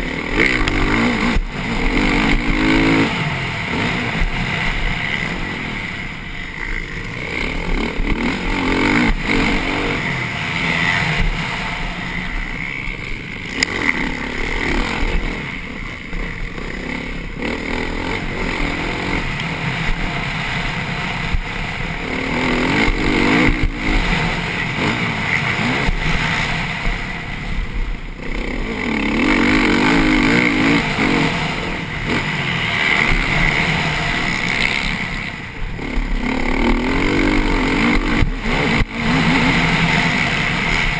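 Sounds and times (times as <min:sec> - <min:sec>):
motocross engine revving: 0:00.0 - 0:40.9
rush of noise: 0:00.0 - 0:40.9.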